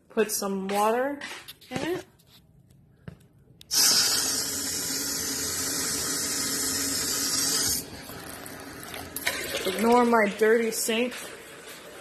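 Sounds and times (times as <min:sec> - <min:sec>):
faucet turned on: 0:03.7 - 0:12.0
water running into packing peanuts: 0:03.7 - 0:12.0.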